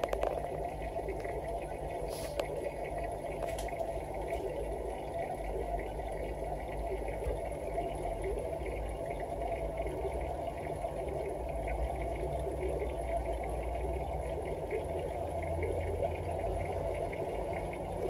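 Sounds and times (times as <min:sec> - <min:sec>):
aquarium filter humming: 0:00.0 - 0:18.0
water bubbling: 0:00.0 - 0:18.0.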